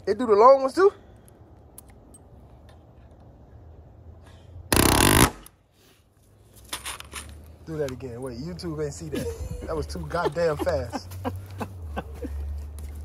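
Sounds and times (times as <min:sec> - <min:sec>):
palm nailer hammering: 0:04.7 - 0:05.4.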